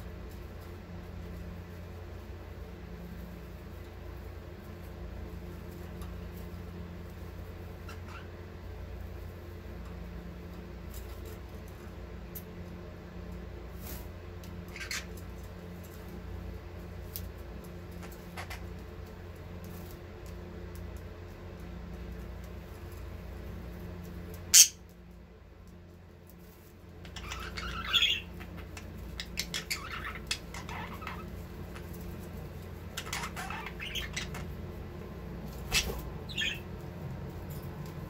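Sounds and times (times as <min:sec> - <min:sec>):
steady low hum: 0:00.0 - 0:38.0
budgerigars chirping: 0:14.7 - 0:15.1, 0:24.5 - 0:24.8, 0:27.1 - 0:31.3, 0:32.9 - 0:34.5, 0:35.7 - 0:36.7.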